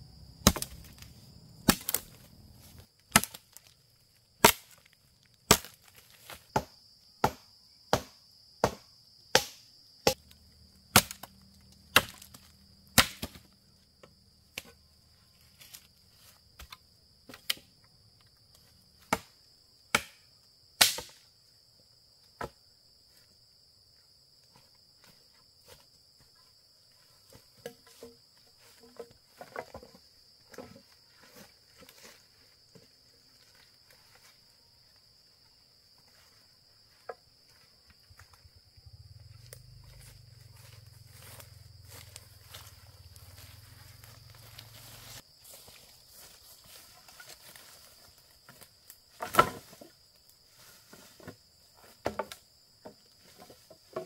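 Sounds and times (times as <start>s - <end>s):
high insect trill: 0.0s - 54.0s
wood being chopped by hand: 0.4s - 1.0s, 1.6s - 2.2s, 3.1s - 3.6s, 4.4s - 4.9s, 5.5s - 10.3s, 10.9s - 11.3s, 11.9s - 13.5s, 19.0s - 21.2s, 49.2s - 49.8s.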